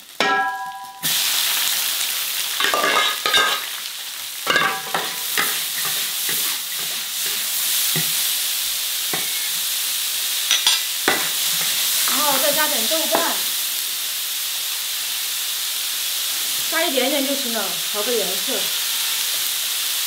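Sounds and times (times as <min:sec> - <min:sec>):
food sizzling in a wok: 0:00.0 - 0:20.0
metal spatula scraping wok: 0:02.6 - 0:03.8, 0:04.4 - 0:08.4, 0:09.0 - 0:09.7.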